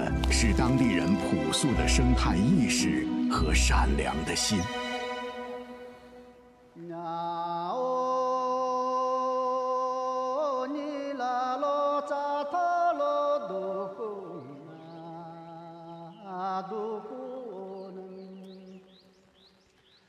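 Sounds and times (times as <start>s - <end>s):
person singing slow song: 0.0s - 18.9s.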